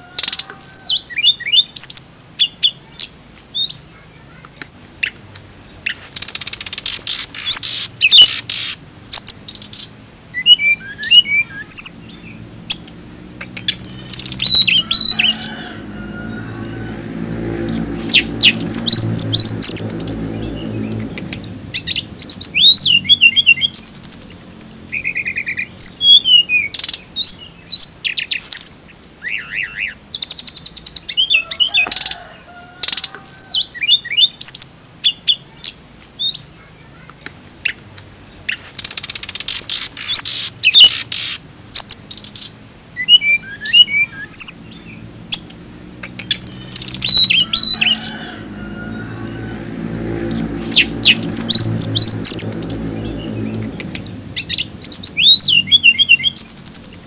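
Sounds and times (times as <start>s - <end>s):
bird singing whistles and trills: 0.1s - 4.0s, 10.2s - 15.8s, 16.8s - 31.5s, 40.0s - 48.2s, 49.3s - 57.0s.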